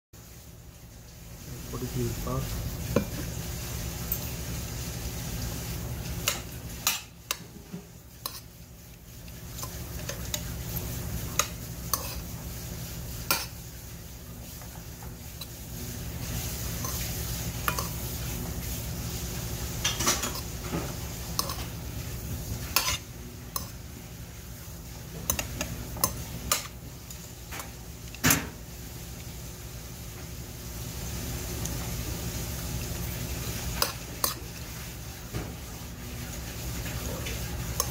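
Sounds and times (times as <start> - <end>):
metal spoon stirring food in bowl: 6.2 - 12.4, 13.2 - 13.6, 16.2 - 18.0, 19.8 - 21.8, 22.6 - 23.8, 25.1 - 28.2, 33.8 - 34.6, 36.9 - 37.9.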